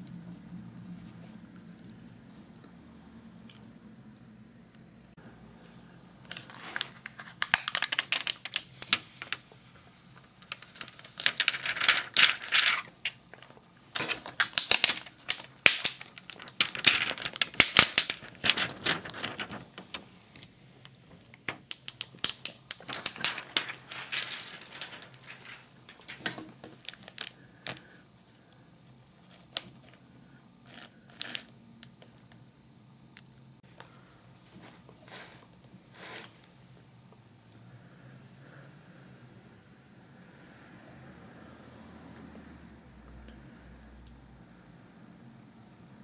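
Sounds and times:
plastic film crinkling: 6.2 - 28.0, 30.6 - 31.5.

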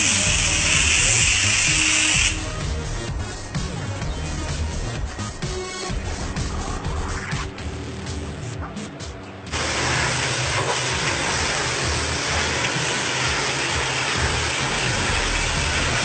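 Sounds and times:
high-pressure water spray hissing: 0.0 - 3.1, 9.5 - 16.0
music: 0.0 - 16.0.

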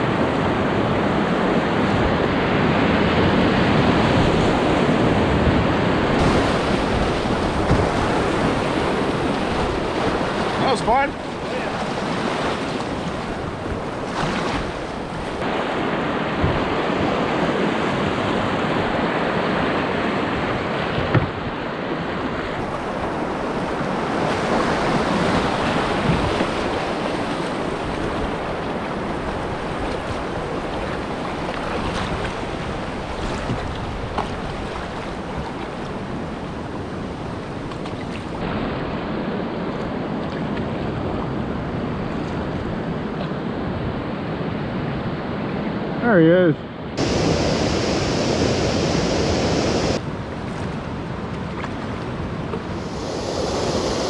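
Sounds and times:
river whitewater rushing: 47.0 - 50.1.

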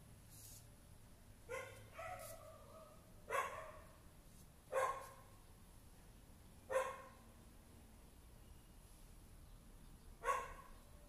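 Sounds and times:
dog barking: 1.5 - 4.0, 4.7 - 5.3, 6.7 - 7.2, 10.2 - 10.8.

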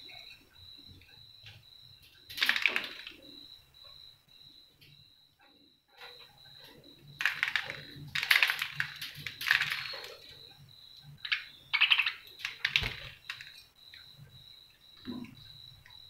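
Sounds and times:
birds clicking and scratching at seed: 1.0 - 3.5, 6.0 - 14.4.

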